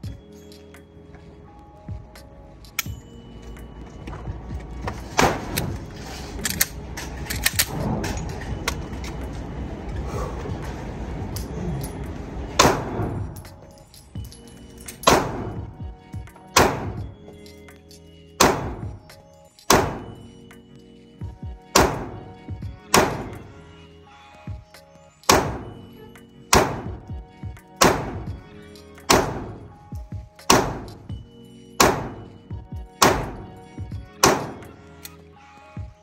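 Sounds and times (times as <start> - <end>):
background music: 0.0 - 36.0
pistol shots: 5.2 - 5.8, 12.6 - 13.6, 14.9 - 15.8, 16.5 - 17.1, 18.4 - 19.1, 19.7 - 20.2, 21.8 - 23.5, 25.3 - 25.9, 26.5 - 27.1, 27.8 - 29.8, 30.4 - 31.1, 31.8 - 32.4, 33.0 - 34.8.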